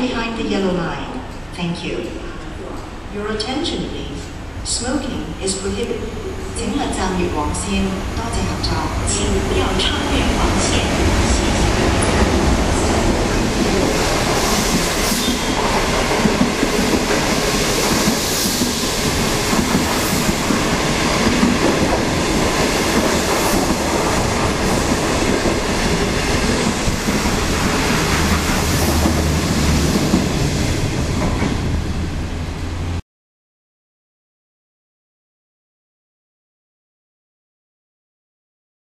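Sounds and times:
train wheels rumbling and clacking: 8.4s - 33.0s.

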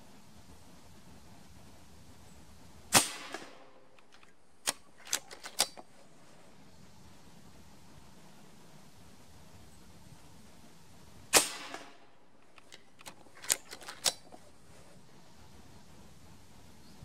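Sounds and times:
air rifle shot crack: 2.9s - 5.8s, 11.3s - 14.4s
metallic lever clicks: 3.3s - 5.9s, 11.7s - 14.5s.

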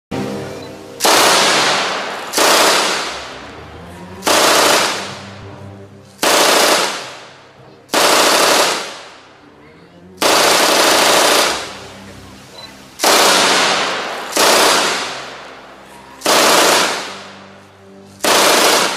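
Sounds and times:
machine gun bursts: 1.0s - 3.3s, 4.2s - 5.1s, 6.2s - 7.2s, 7.9s - 9.1s, 10.2s - 11.7s, 13.0s - 15.3s, 16.2s - 17.2s, 18.2s - 18.9s
gunfire echo: 1.0s - 3.4s, 4.2s - 5.3s, 6.2s - 7.4s, 8.0s - 9.2s, 10.2s - 11.7s, 13.0s - 15.5s, 16.2s - 17.3s, 18.2s - 18.9s.

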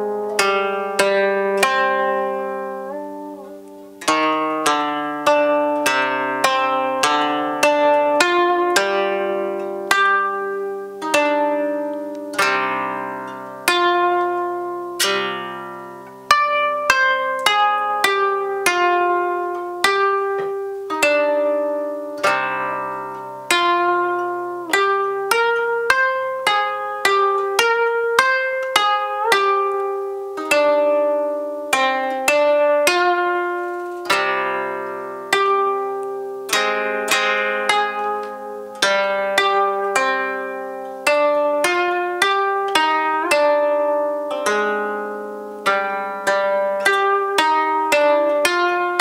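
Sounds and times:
koto plucked melody: 0.0s - 49.0s.

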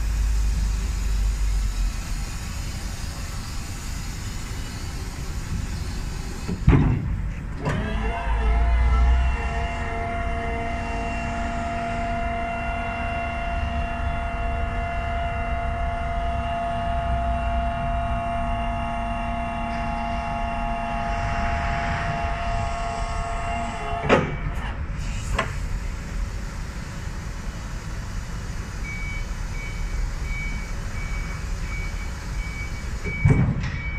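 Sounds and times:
clunks: 6.4s - 8.4s, 23.9s - 25.6s, 33.0s - 33.9s
hydraulic pump motor whining: 7.3s - 25.7s.

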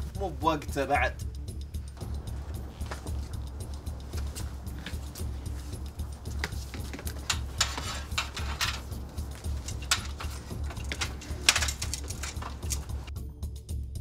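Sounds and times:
steady low hum: 1.2s - 13.1s
clicks and metallic knocks on ladder: 4.2s - 13.1s.

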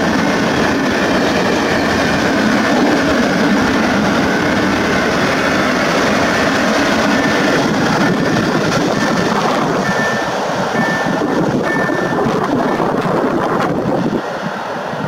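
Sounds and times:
freight train wheels rumbling: 0.0s - 15.0s
high-pitched wheel squeals: 9.8s - 13.0s.

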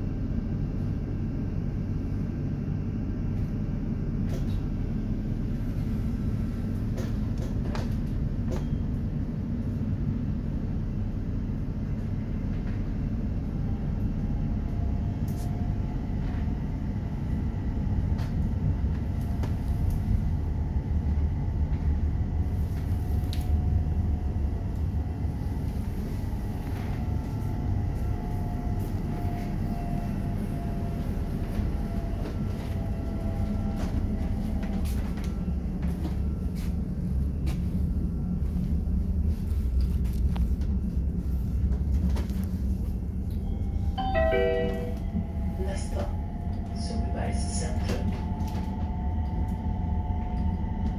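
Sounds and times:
tram wheels rumbling on track: 0.0s - 50.9s.

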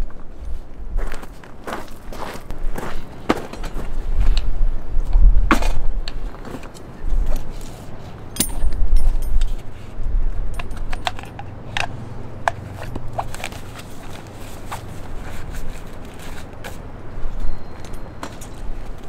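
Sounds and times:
light metallic rattles: 6.4s - 19.0s
fabric rustling: 13.3s - 16.9s.

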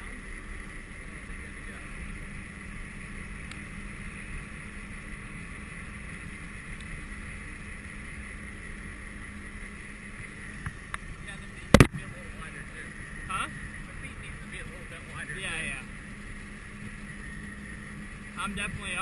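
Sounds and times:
electric motor whine: 0.0s - 19.0s.

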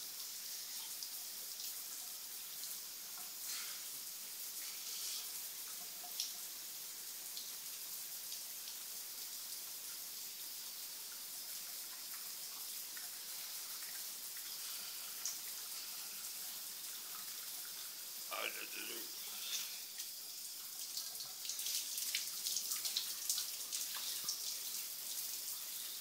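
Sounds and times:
shower spray hissing: 3.3s - 5.7s, 12.4s - 20.6s, 21.4s - 26.0s.

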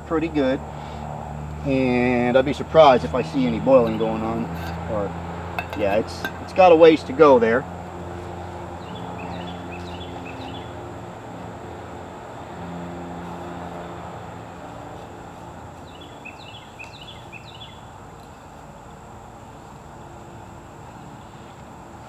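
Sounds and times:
bird chirping: 8.8s - 10.7s, 15.8s - 17.9s.

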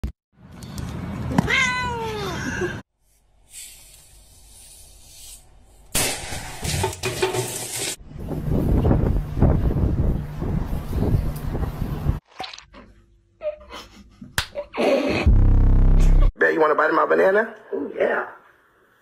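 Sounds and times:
cat meowing: 1.4s - 2.3s.

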